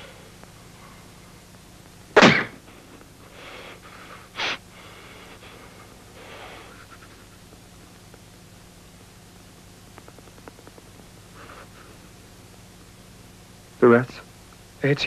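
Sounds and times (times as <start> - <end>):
voiced breaths: 3.2 - 7.5.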